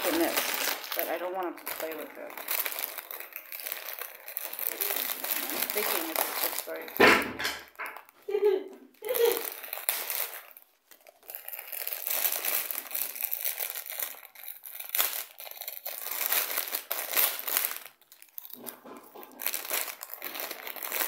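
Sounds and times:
plastic bag crinkling: 0:00.0 - 0:21.0.

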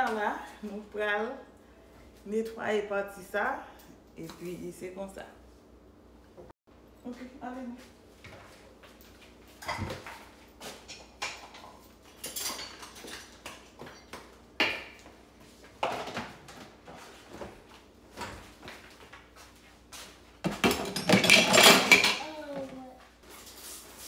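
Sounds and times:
dishes and pans clattering: 0:09.6 - 0:15.0, 0:20.4 - 0:22.4.

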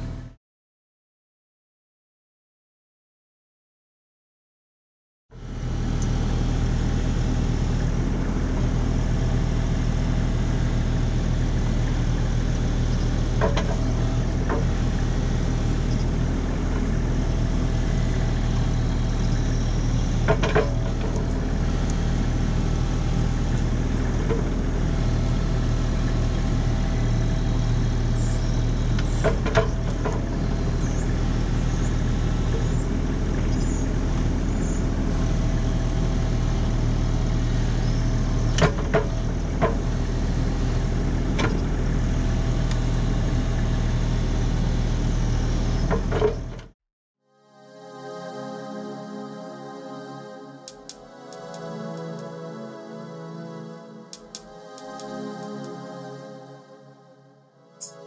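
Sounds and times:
diesel engine running: 0:00.0 - 0:00.4, 0:05.4 - 0:46.6, 0:50.7 - 0:52.7.

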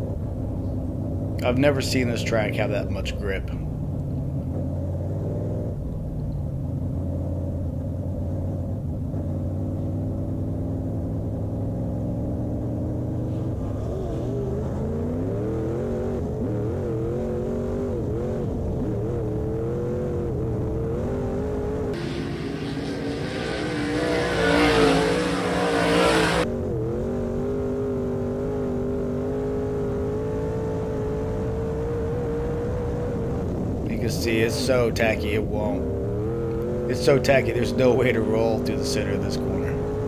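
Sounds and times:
race car engine running: 0:00.0 - 0:40.0
race car passing: 0:09.4 - 0:19.6, 0:20.6 - 0:26.5, 0:33.8 - 0:40.0.

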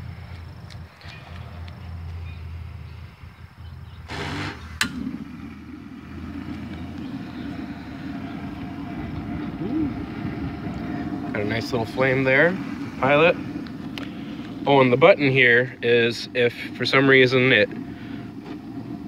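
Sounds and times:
gas flame burning: 0:04.0 - 0:19.0
gas hissing: 0:04.0 - 0:19.0
burner igniting pop: 0:04.1 - 0:05.1.

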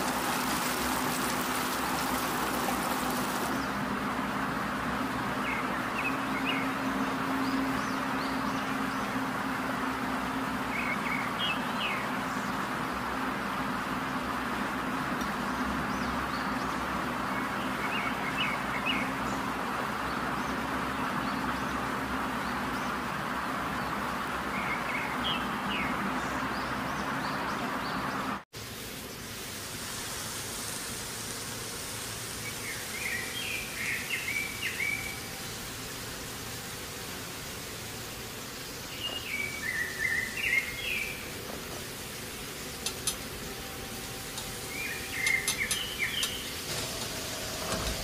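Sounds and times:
birds chirping: 0:00.0 - 0:03.9, 0:05.1 - 0:09.3, 0:32.4 - 0:36.5, 0:38.2 - 0:48.0
steady hiss: 0:00.0 - 0:05.2, 0:28.6 - 0:48.0.

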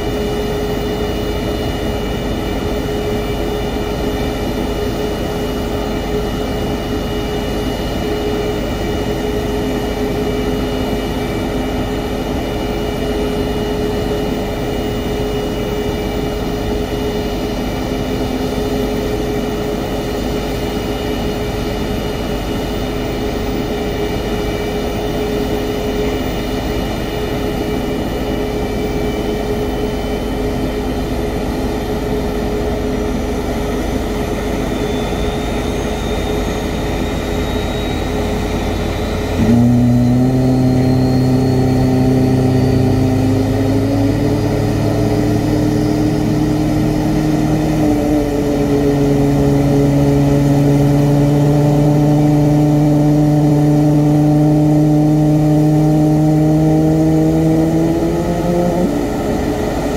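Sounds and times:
jet engine spooling up: 0:00.0 - 0:59.9.

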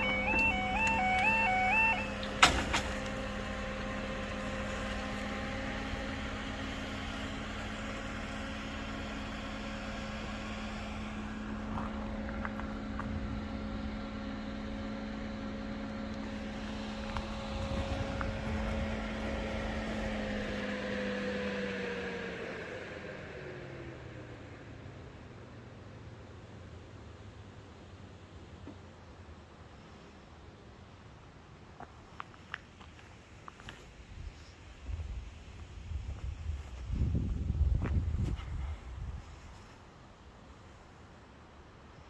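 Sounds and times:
crossing alarm: 0:00.0 - 0:03.3
barrier motor humming: 0:00.0 - 0:24.2.

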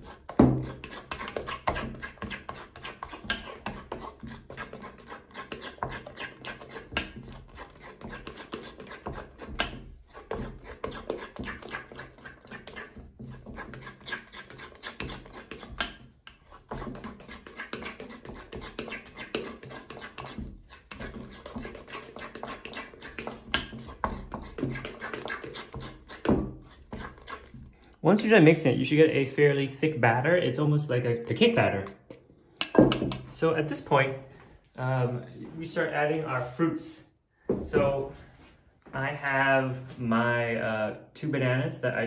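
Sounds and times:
fork scraping metal bowl: 0:00.0 - 0:28.3, 0:31.1 - 0:33.5.

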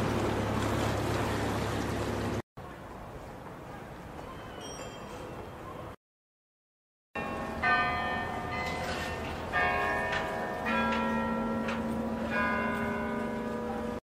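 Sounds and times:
church bells ringing: 0:07.2 - 0:14.0.

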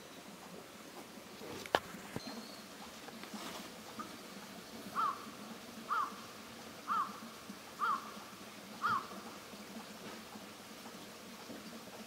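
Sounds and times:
bird calling: 0:05.0 - 0:05.3, 0:05.9 - 0:06.2, 0:06.9 - 0:07.2, 0:07.8 - 0:08.2, 0:08.8 - 0:09.2.

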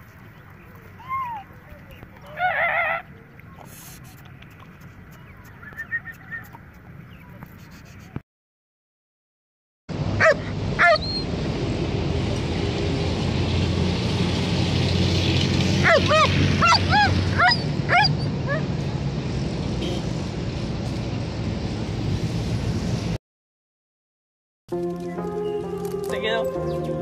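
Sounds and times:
road traffic hum: 0:00.0 - 0:08.2, 0:09.9 - 0:23.2
dog barking: 0:10.2 - 0:11.1, 0:15.8 - 0:18.7.

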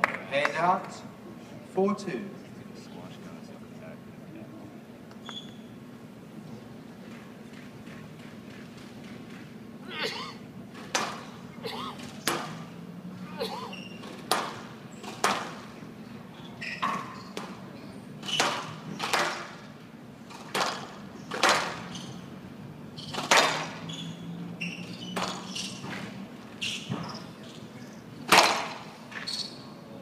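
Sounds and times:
squash ball hits: 0:14.3 - 0:14.6, 0:18.3 - 0:19.6, 0:23.1 - 0:23.8, 0:28.3 - 0:28.8.

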